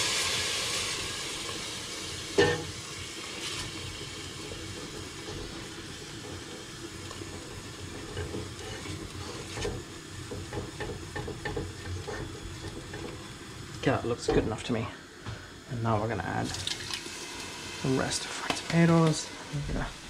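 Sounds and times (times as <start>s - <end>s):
paste sizzling in pot: 0.0s - 14.9s, 15.5s - 19.6s
spoon scraping pot: 7.3s - 13.2s.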